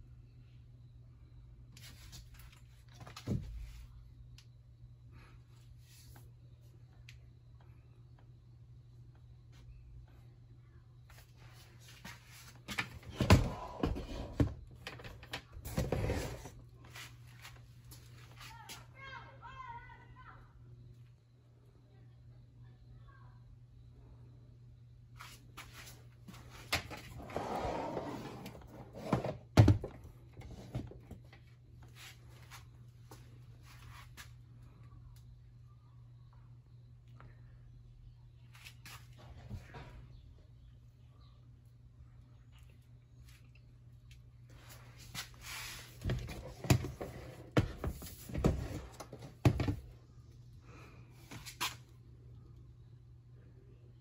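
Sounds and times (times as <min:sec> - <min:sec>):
plastic scraping slide: 0:27.2 - 0:29.4.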